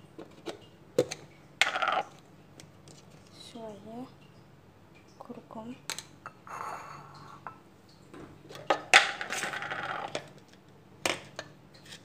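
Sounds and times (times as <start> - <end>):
containers clicking and clinking: 0.2 - 3.4, 8.5 - 12.0.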